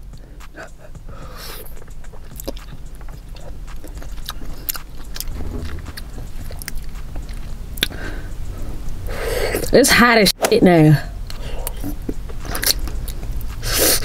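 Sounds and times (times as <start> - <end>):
chewing dumpling: 0.1 - 8.2, 11.3 - 14.0
wet mouth clicks and smacks: 1.7 - 5.3, 11.3 - 13.8.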